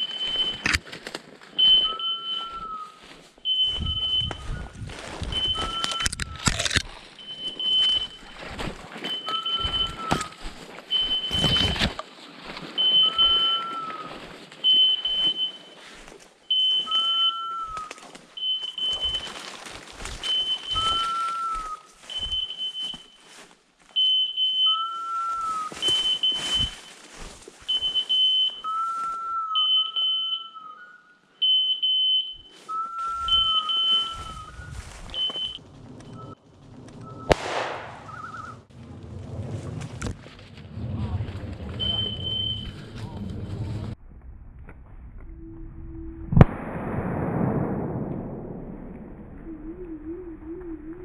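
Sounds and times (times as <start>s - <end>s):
short high beeps: 9.2s - 10.4s, 33.2s - 34.4s
rustling: 25.2s - 29.2s
rising and falling electronic tone: 41.9s - 51.0s.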